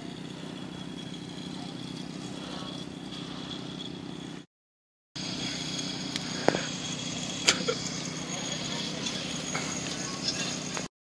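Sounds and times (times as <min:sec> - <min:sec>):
faint high whine: 0:00.0 - 0:04.5, 0:05.2 - 0:10.9
low mechanical hum: 0:00.0 - 0:04.5, 0:05.2 - 0:10.9.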